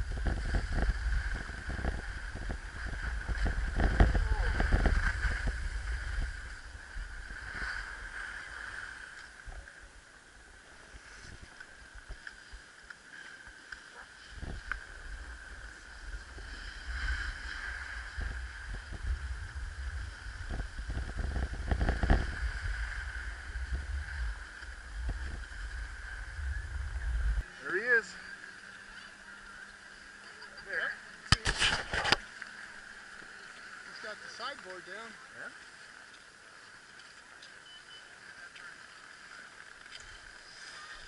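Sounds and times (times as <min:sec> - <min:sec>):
snow scraping and crunching: 0:00.0 - 0:09.4
wind rumbling on microphone: 0:00.0 - 0:27.5.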